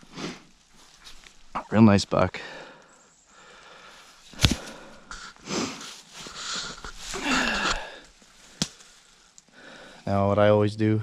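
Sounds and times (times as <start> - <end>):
person breathing heavily: 2.4 - 10.0.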